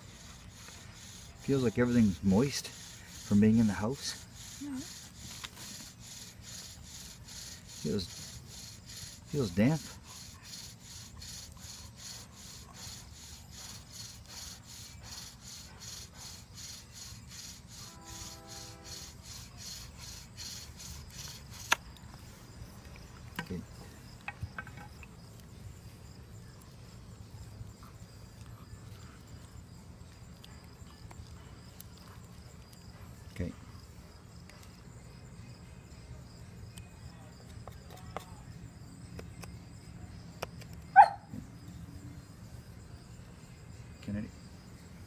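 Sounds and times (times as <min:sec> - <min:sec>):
bow drill spindle rubbing: 0:00.0 - 0:21.8.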